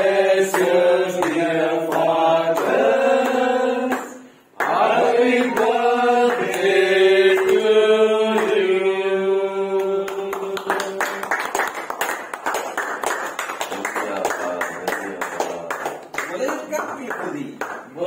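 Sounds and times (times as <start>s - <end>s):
voices singing together: 0.0s - 11.7s
hand clapping applause: 0.4s - 6.7s, 9.8s - 18.0s.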